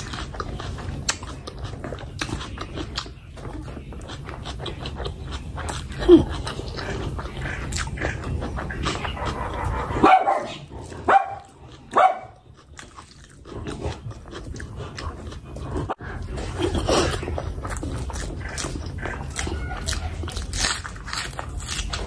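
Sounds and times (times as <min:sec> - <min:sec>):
fingers squelching through food: 0:00.0 - 0:22.0
wet chewing and mouth smacks: 0:00.0 - 0:22.0.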